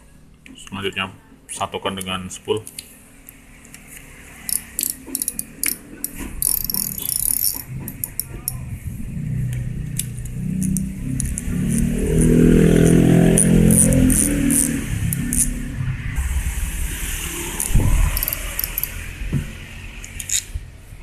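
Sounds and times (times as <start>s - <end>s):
fishing reel clicks and rattles: 4.5s - 8.3s, 17.6s - 19.0s
reel gears whirring: 4.5s - 8.6s, 10.4s - 15.6s, 17.5s - 19.1s.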